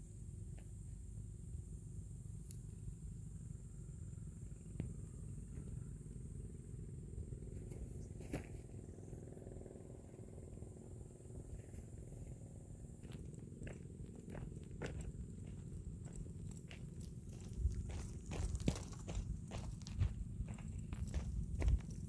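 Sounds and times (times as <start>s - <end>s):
wind rumbling on microphone: 17.3s - 22.0s.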